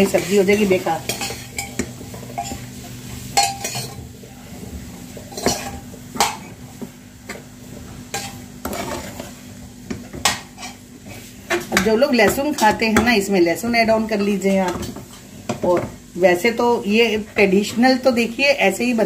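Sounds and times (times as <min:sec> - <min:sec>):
metal spoon scraping frying pan: 0:00.1 - 0:02.7, 0:03.3 - 0:04.0, 0:05.3 - 0:06.5, 0:08.1 - 0:09.4, 0:10.2 - 0:11.3.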